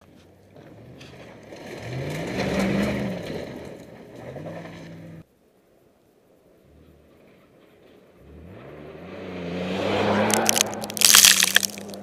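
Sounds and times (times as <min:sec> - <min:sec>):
pickup truck engine revving past: 0:08.2 - 0:11.0.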